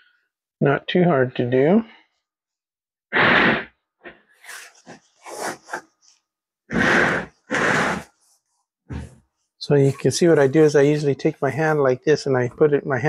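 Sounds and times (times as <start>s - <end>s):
person puffing breath: 3.1s - 9.3s.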